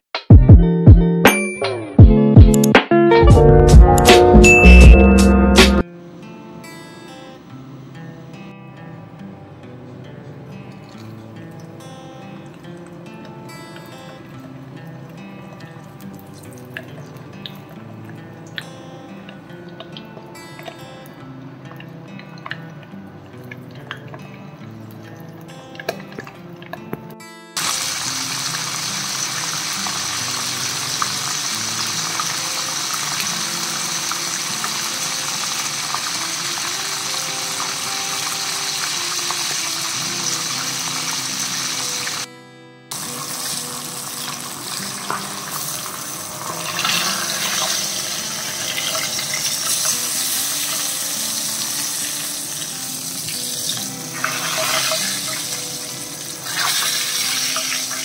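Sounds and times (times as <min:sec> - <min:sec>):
light background music: 0:00.4 - 0:58.0
fish sizzling in hot oil: 0:27.6 - 0:42.3, 0:42.9 - 0:58.0.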